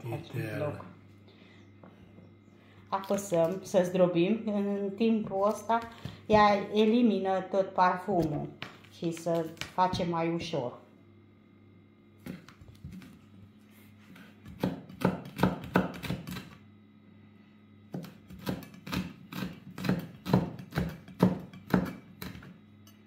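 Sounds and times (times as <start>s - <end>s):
knife chopping on wooden board: 12.2s - 13.2s, 14.1s - 16.6s, 17.9s - 22.6s.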